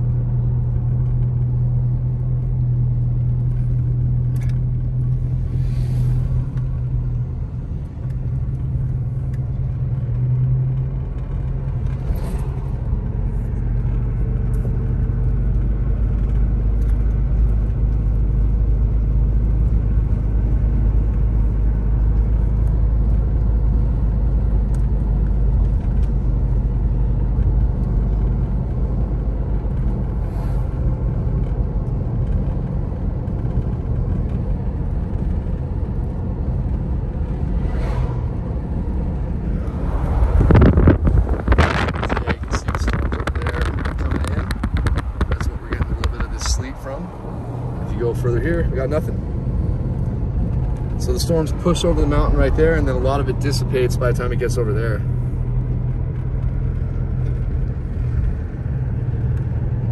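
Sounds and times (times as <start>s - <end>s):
car road noise rumble: 0.0s - 59.9s
brief whooshes: 37.5s - 38.5s.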